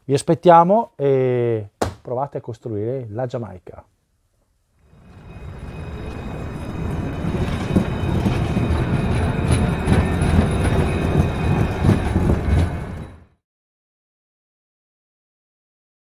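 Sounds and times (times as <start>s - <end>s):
faint high whine: 4.8s - 13.0s
model train rumbling on track: 4.9s - 13.2s
wheel clatter: 5.0s - 13.2s.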